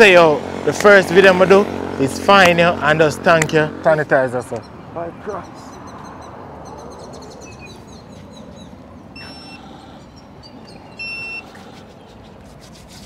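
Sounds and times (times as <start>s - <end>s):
birds chirping faintly: 4.3s - 12.8s
dispenser electronic beeps: 9.1s - 9.6s, 10.2s - 11.5s.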